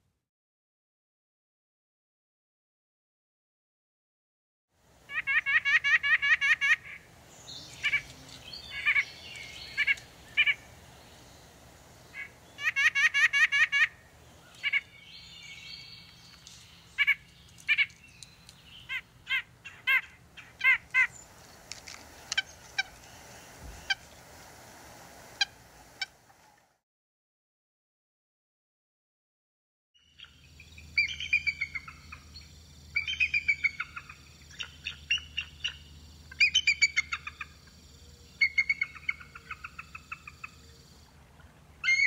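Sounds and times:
nuthatch nasal calls: 5.1 - 10.7, 18.7 - 21.3, 22.3 - 24.2, 30.1 - 37.6, 38.3 - 40.8
faint bird chatter: 5.2 - 21.4.

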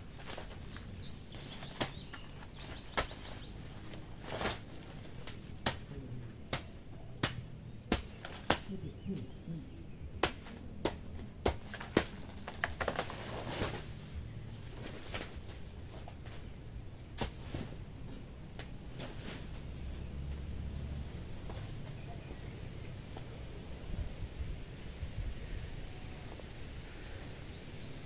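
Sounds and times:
birds chirping: 0.0 - 28.0
leaves and stalks rustling: 0.0 - 28.0
sharp chops and snaps: 6.5 - 8.8.

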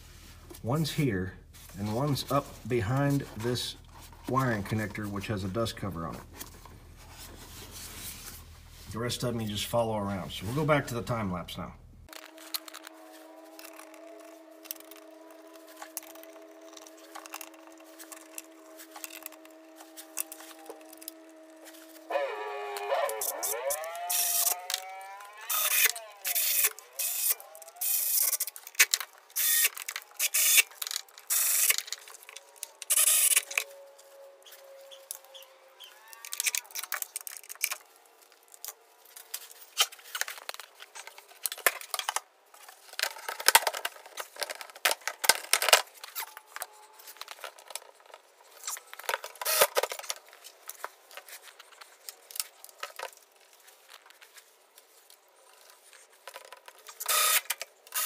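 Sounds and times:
sped-up tool clicks and whirs: 22.0 - 33.8, 48.6 - 50.1, 56.8 - 58.0.

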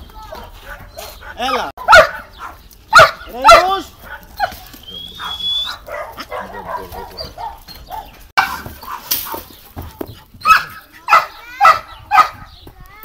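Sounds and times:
dog yipping and whining: 5.2 - 8.6.

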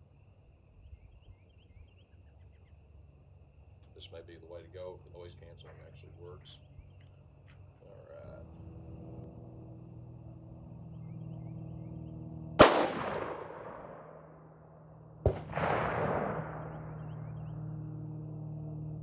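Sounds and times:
gunshots with ringing: 12.6 - 14.6, 15.2 - 17.5.

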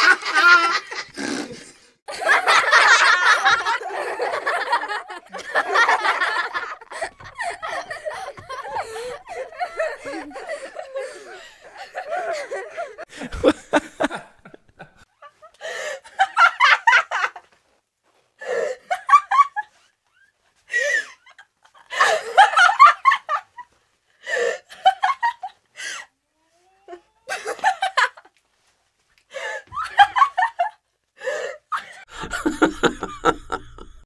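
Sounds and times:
laughter bursts: 0.0 - 17.4, 26.9 - 28.3, 31.7 - 34.0.

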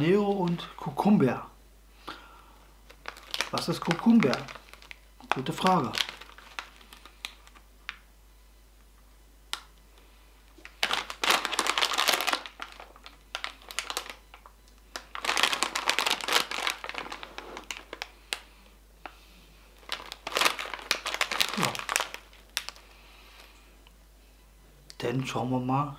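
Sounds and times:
foil snack bag crinkling: 0.0 - 0.9, 2.8 - 8.0, 10.6 - 18.5, 19.7 - 23.5.

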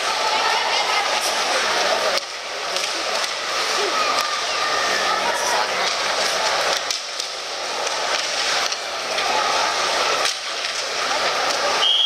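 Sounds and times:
rink noise: 0.0 - 12.0
spectator chatter: 0.0 - 12.0.

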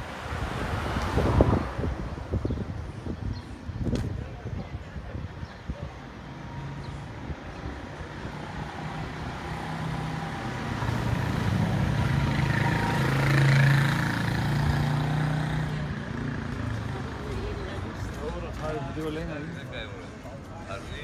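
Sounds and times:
vehicle passing close by: 0.0 - 2.4, 8.2 - 17.3.

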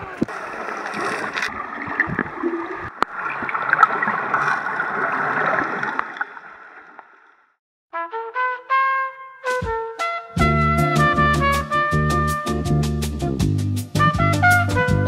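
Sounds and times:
underwater bubbling and gurgling: 0.0 - 7.4.

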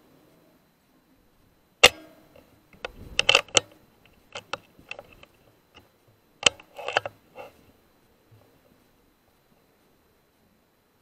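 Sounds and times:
air rifle metallic clicks: 1.8 - 7.6.

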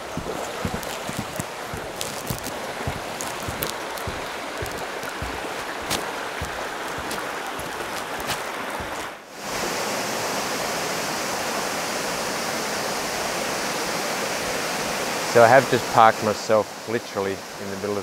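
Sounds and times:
waterfall rushing: 0.0 - 9.9
creek water rushing: 0.0 - 18.0.

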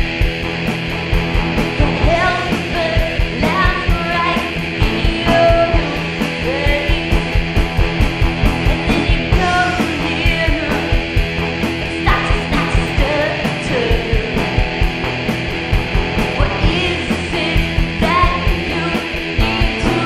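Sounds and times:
drum kit beat: 0.0 - 20.0
electric guitar: 0.0 - 20.0
woman singing: 1.8 - 7.3, 8.6 - 11.0, 11.9 - 14.6, 16.4 - 20.0.

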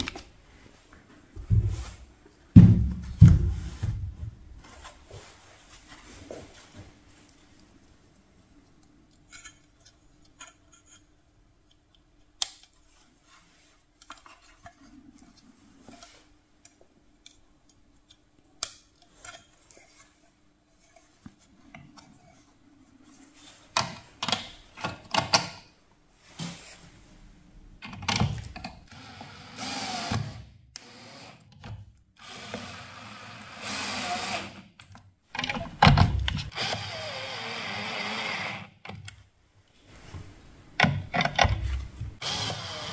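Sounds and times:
cordless screwdriver running: 32.2 - 34.6, 36.5 - 38.7, 42.2 - 42.9
clicks and knocks of handling: 40.8 - 42.0.

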